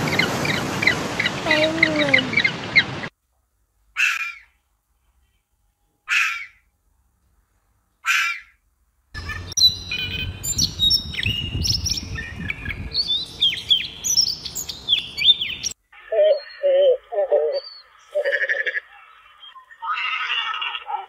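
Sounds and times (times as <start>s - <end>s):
low rumble of wind: 8.6s - 16.1s
robin singing: 9.2s - 21.0s
hoarse animal call: 16.0s - 19.1s.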